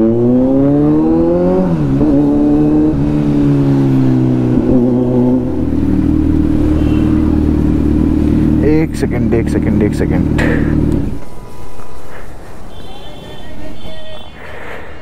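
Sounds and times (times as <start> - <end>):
motorcycle engine accelerating: 0.0 - 11.3.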